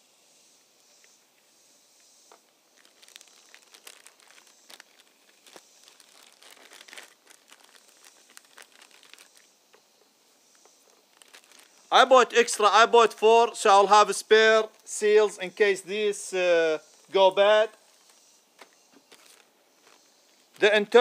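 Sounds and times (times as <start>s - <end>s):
plastic bags crinkling: 2.8s - 9.5s, 11.1s - 11.9s.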